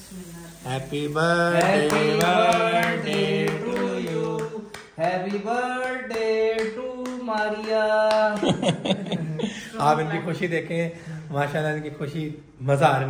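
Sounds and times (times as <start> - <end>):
man singing: 0.7 - 8.7.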